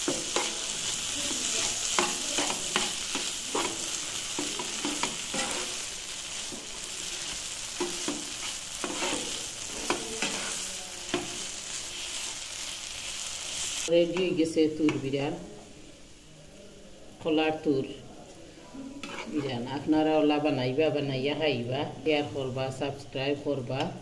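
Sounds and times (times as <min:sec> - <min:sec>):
spatula scraping frying pan: 0:00.0 - 0:12.7, 0:19.0 - 0:19.7
frying sizzle: 0:00.0 - 0:16.6.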